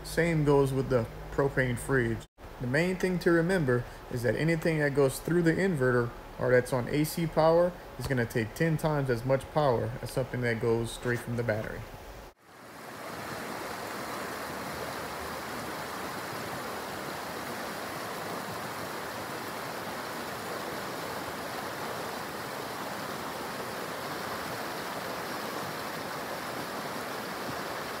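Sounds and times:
creek rushing over stones: 0:12.4 - 0:28.0.

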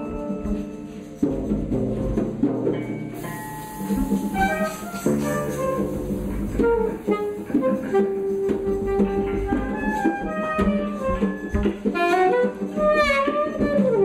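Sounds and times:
drum and cymbal hits: 0:00.5 - 0:12.2
electric guitar melody: 0:03.0 - 0:14.0.

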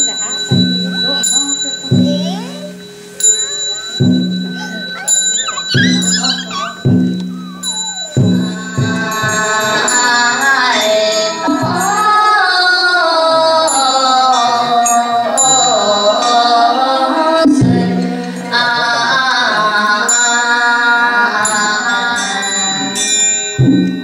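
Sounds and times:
small hand bell ringing: 0:00.0 - 0:12.2, 0:21.4 - 0:24.0.

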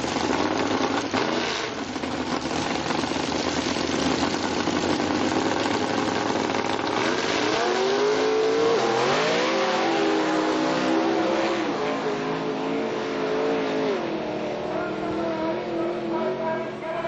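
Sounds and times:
drag racing cars accelerating: 0:00.0 - 0:17.0.

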